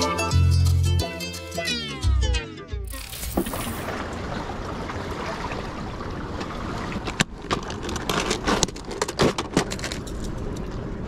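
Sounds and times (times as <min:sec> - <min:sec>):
wind: 0:02.8 - 0:11.0
water noise: 0:02.9 - 0:08.6
plastic box clicking and rattling: 0:07.4 - 0:10.4.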